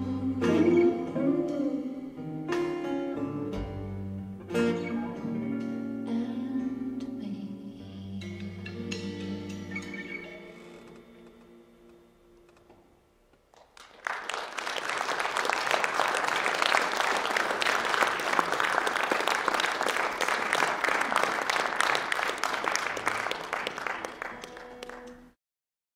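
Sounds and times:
audience applauding: 13.5s - 25.4s.

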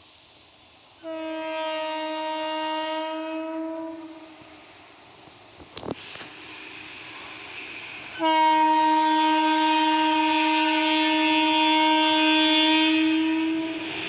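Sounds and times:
faint rumble of moving train: 0.0s - 14.0s
train horn blast: 1.0s - 4.6s, 8.2s - 13.9s.

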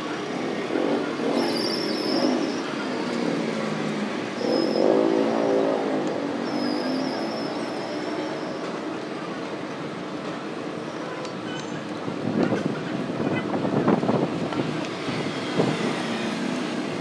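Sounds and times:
traffic noise: 0.0s - 17.0s.

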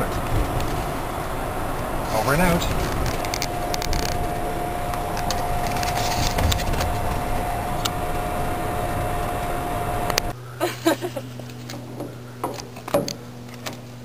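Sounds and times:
tyre and road noise: 0.0s - 10.4s
low hum: 0.0s - 14.0s
thin electric whine: 0.0s - 14.0s.

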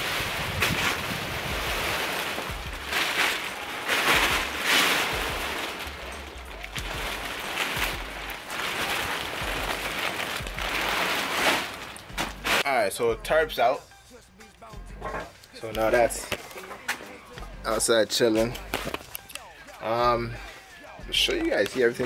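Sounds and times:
plastic tarp rustling: 0.0s - 12.8s.

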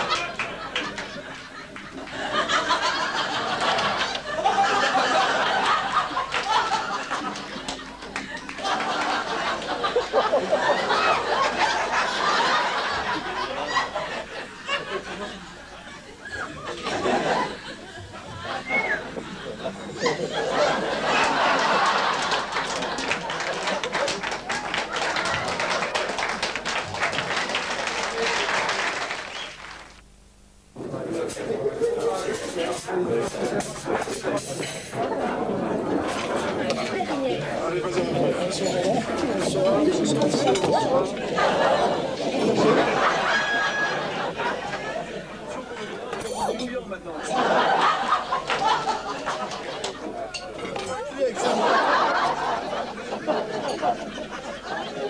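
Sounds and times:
applause: 0.0s - 2.2s, 6.2s - 9.8s, 21.2s - 30.0s
people talking: 0.0s - 26.4s, 27.7s - 28.8s, 30.8s - 55.0s
people laughing: 0.0s - 29.4s, 30.8s - 55.0s
voices: 30.8s - 55.0s.

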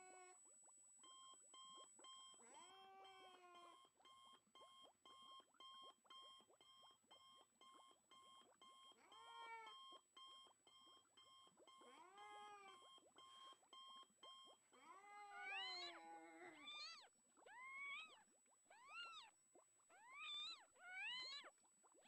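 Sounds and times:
cat meowing: 9.1s - 9.8s, 11.9s - 12.8s, 14.8s - 19.3s, 20.0s - 21.5s.

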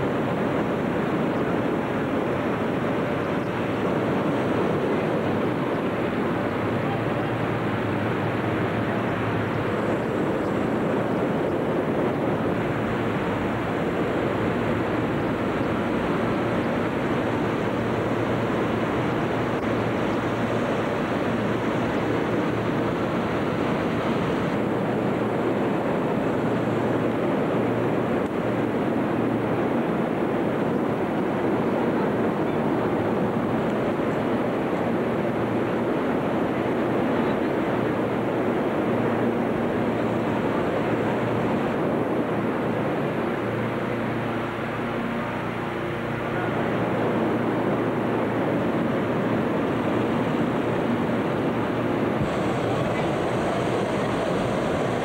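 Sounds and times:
inflator fans roaring: 0.0s - 55.0s
balloon burners roaring: 52.0s - 55.0s.

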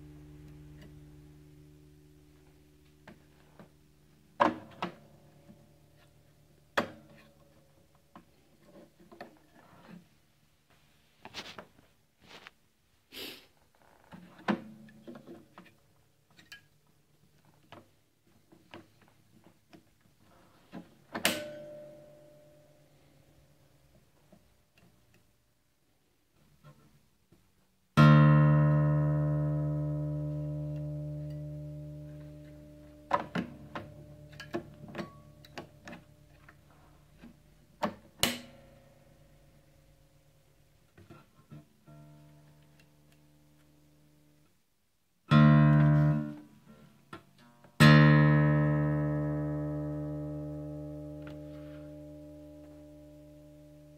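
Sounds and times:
guitar ringing: 21.2s - 22.7s, 28.0s - 35.9s, 45.3s - 46.5s, 47.8s - 53.9s
guitar strings ringing faintly: 21.2s - 22.8s.

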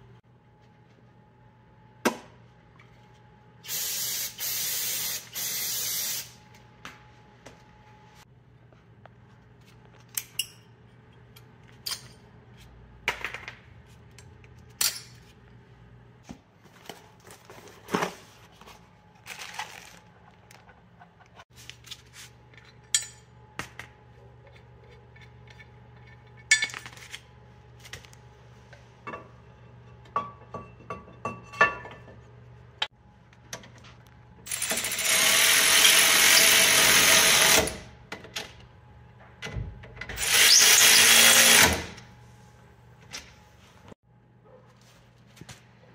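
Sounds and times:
packaging rustling: 19.1s - 20.6s
metal brake parts clinking: 22.5s - 23.3s, 25.1s - 27.1s.

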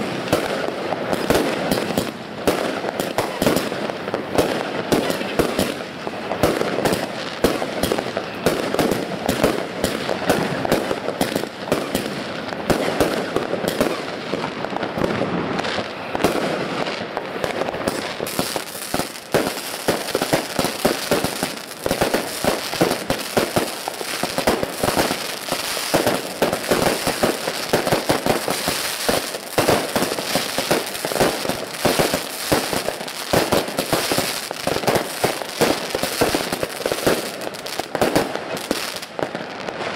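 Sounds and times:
firework crackling: 0.0s - 39.9s
fireworks exploding: 0.0s - 39.9s.

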